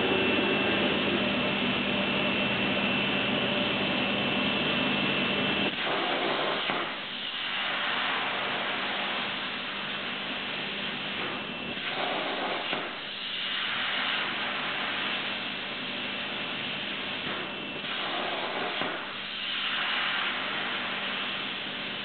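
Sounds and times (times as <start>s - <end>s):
plasma cutter torch hissing: 5.7s - 22.0s.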